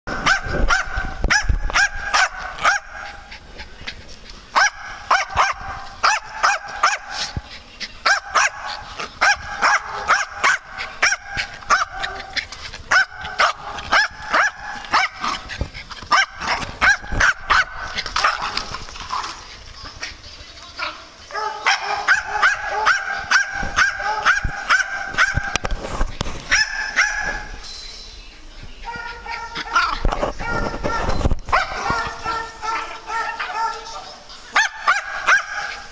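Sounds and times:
small dog barking: 0.2s - 3.2s, 4.6s - 7.2s, 8.0s - 15.4s, 16.1s - 18.5s, 21.3s - 25.5s, 26.5s - 27.5s, 28.9s - 34.0s, 34.6s - 35.9s.

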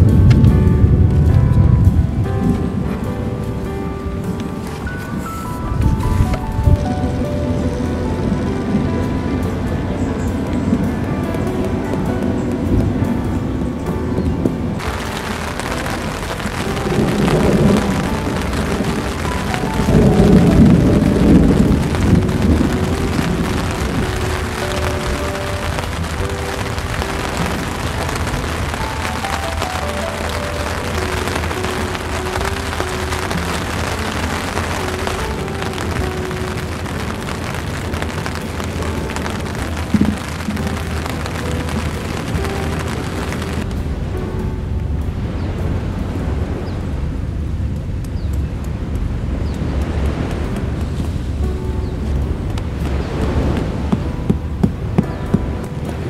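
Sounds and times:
low rumble: 0.0s - 11.3s
heavy rain: 0.0s - 56.0s
thunder rumbling: 0.0s - 56.0s
wind buffeting microphone: 0.0s - 56.0s.

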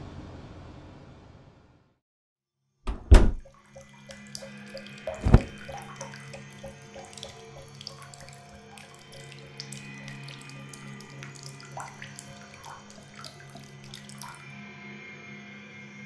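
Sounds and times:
heavy low booms: 2.9s - 3.4s.

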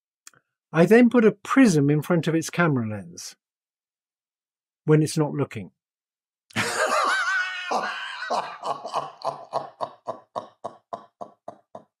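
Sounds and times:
man laughing hard: 6.6s - 12.0s.

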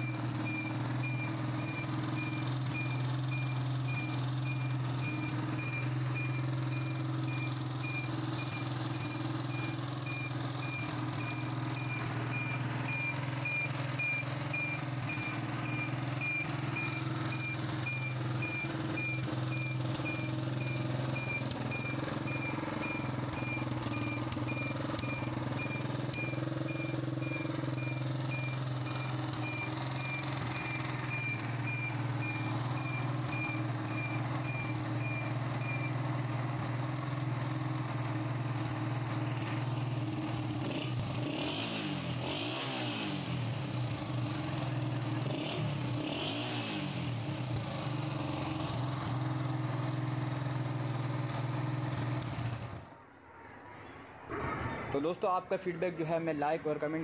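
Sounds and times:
high-pitched beep: 0.0s - 36.0s
motorcycle engine idling: 0.0s - 42.4s, 43.1s - 53.0s.

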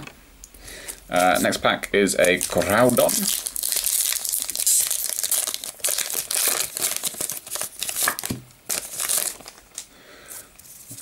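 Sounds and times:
foil wrapper crinkling: 2.2s - 9.9s.

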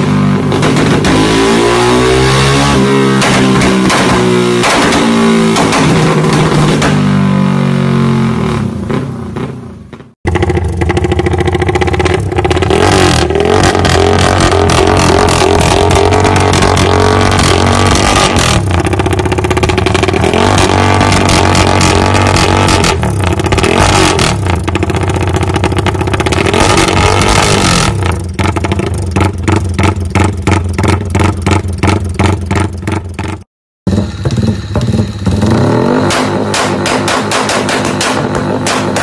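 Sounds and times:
motorcycle engine revving: 0.0s - 39.0s
motorcycle exhaust running: 0.0s - 39.0s.

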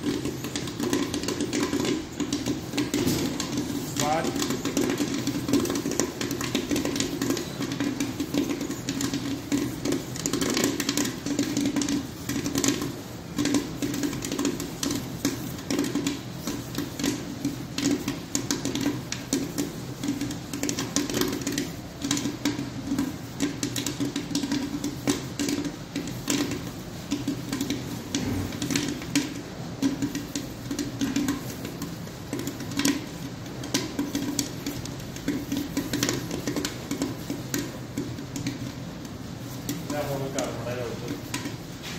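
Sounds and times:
popcorn kernels popping: 0.0s - 41.9s.

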